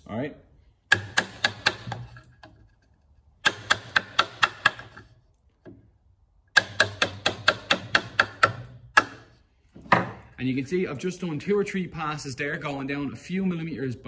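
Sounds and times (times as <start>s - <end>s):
mallet tapping chisel: 0.9s - 2.8s, 3.4s - 5.8s, 6.5s - 9.3s.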